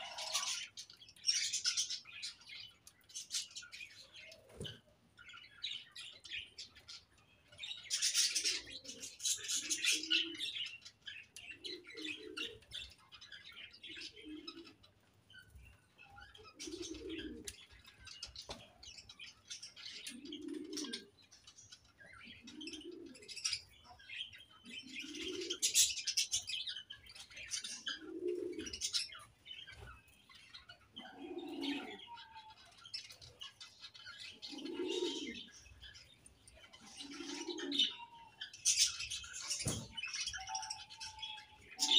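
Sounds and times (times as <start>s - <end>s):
budgerigars chirping and warbling: 0.0s - 41.9s
low cooing call: 31.0s - 32.6s, 34.5s - 35.5s.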